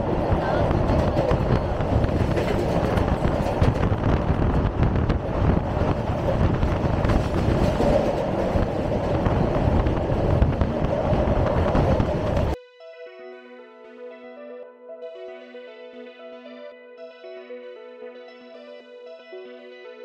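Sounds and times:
train wheels rumbling on rails: 0.0s - 12.6s.

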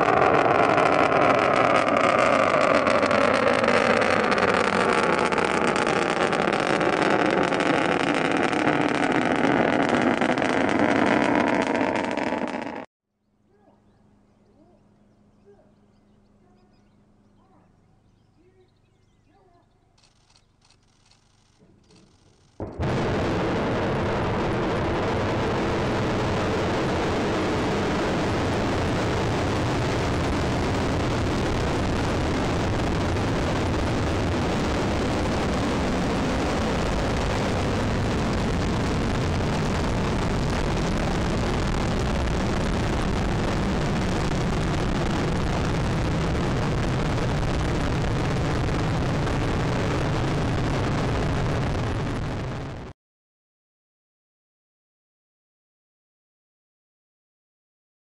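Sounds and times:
rocket engine roar: 0.0s - 12.9s, 22.6s - 52.9s.

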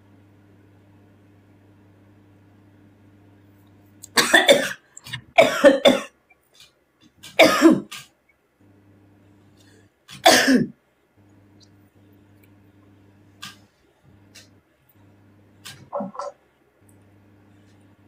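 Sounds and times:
faint electrical hum: 0.0s - 18.0s
woman coughing hard: 4.1s - 6.2s, 7.4s - 7.9s, 10.2s - 10.8s.

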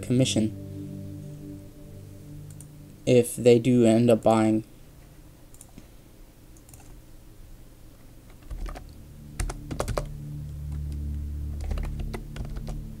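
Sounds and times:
low steady hum: 0.0s - 13.0s
keyboard keys clicking: 8.3s - 10.1s, 11.6s - 12.8s.

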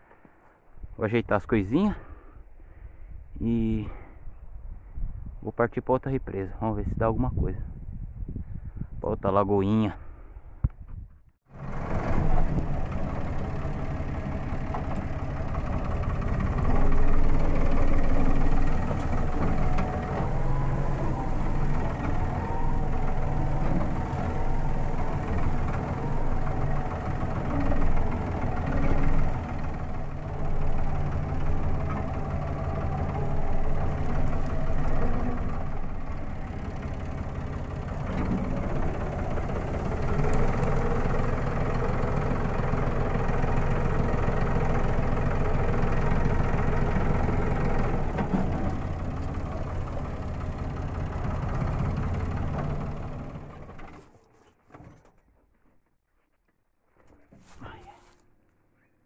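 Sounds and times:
tractor engine running: 11.5s - 54.3s.

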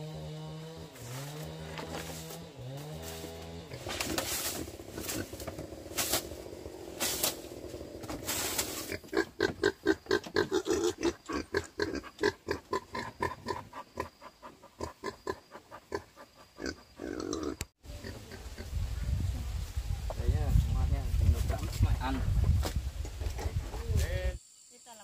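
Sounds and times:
pigs grunting: 3.0s - 18.8s.

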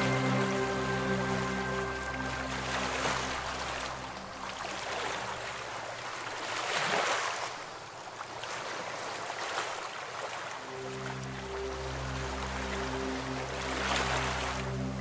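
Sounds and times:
soft background music: 0.0s - 6.4s, 10.6s - 15.0s
river water rushing: 0.0s - 15.0s.

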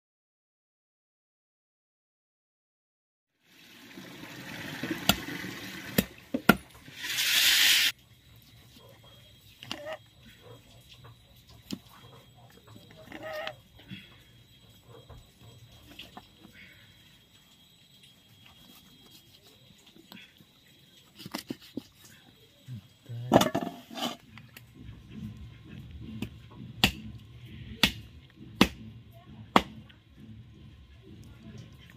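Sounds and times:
loud rushing hiss: 6.9s - 7.9s
dog barking: 10.3s - 10.9s.

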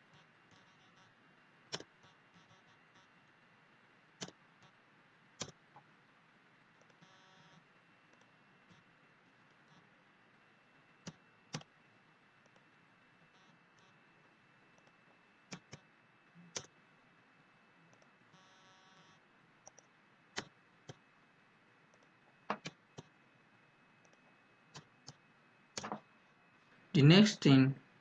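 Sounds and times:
mouse and keyboard clicks: 14.8s - 15.8s, 21.9s - 23.1s, 25.8s - 26.0s.

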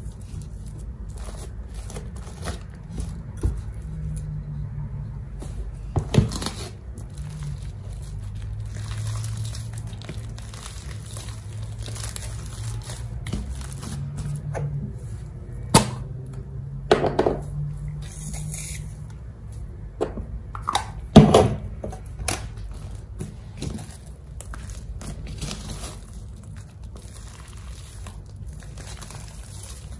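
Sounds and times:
cream squeezed from bottle: 18.0s - 19.0s.

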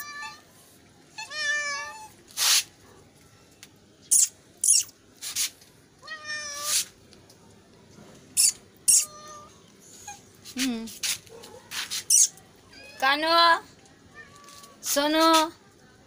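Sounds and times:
cats meowing: 0.0s - 0.4s, 1.2s - 2.2s, 6.0s - 6.9s, 8.4s - 10.3s
short sharp hissing: 2.4s - 2.7s, 4.1s - 5.5s, 6.6s - 6.9s.

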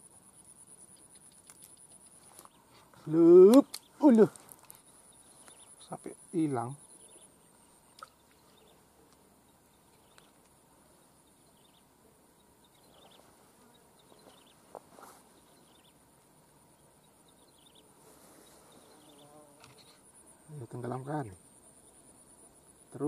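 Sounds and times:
high-pitched insect trill: 18.8s - 23.0s.

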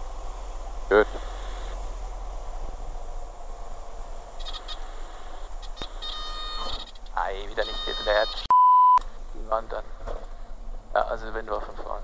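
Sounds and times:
aircraft engine and airflow noise: 0.0s - 12.0s
buzzing warning tone: 4.4s - 9.0s.

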